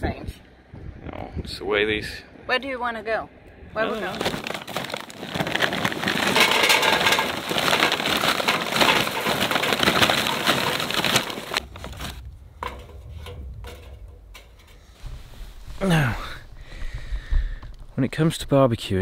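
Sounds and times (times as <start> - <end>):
charcoal clattering into metal container: 3.9 - 14.9.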